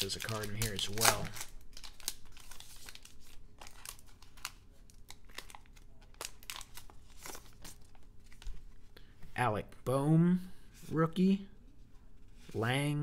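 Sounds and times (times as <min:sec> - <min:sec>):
wrapper tearing and crinkling: 0:00.0 - 0:07.8.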